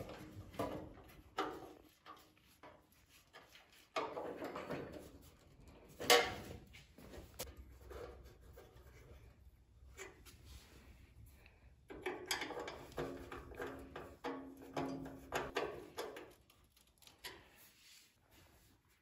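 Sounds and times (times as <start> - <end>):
knocks and scraping of sheet metal: 0.0 - 9.2, 11.9 - 16.4.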